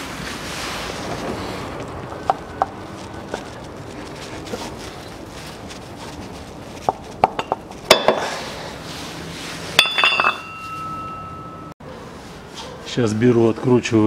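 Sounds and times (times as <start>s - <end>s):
steel parts clinking: 9.8s - 11.7s.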